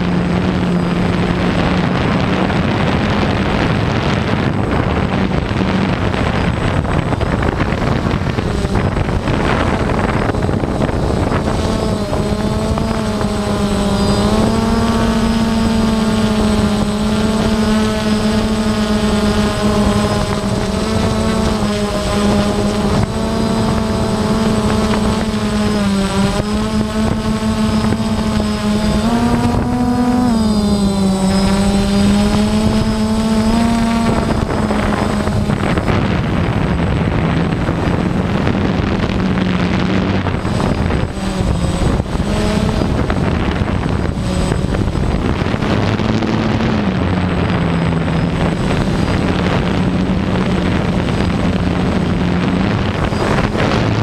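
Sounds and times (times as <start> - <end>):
drone propellers buzzing: 0.0 - 54.0
rushing air noise: 0.0 - 54.0.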